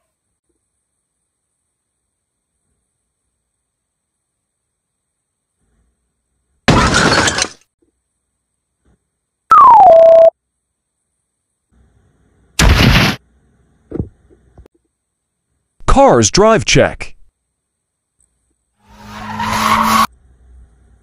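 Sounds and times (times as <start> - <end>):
faint small sounds: 0.0 - 6.6, 7.5 - 9.6, 10.2 - 12.6, 13.2 - 15.9, 17.2 - 18.9
tone sliding down in pitch: 9.5 - 10.3
cartoon explosion crash: 12.6 - 13.2
cartoon shattering burst: 12.6 - 13.2.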